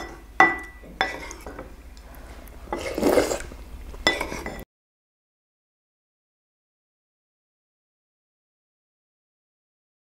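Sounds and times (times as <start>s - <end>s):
wooden spoon scraping ceramic bowl: 0.0s - 4.6s
person slurping soup: 1.1s - 4.6s.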